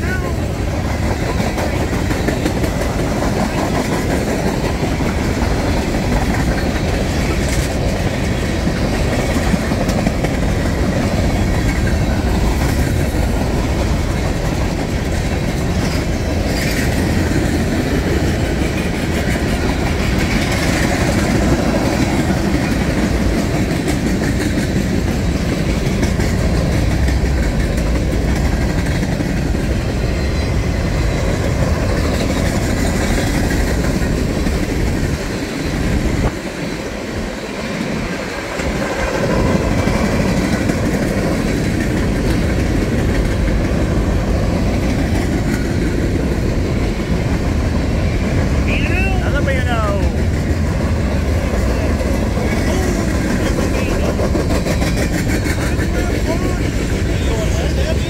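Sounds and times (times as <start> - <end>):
wheels clicking over rail joints: 0.0 - 49.1, 49.9 - 58.0
train wheels rumbling on rails: 0.0 - 58.0.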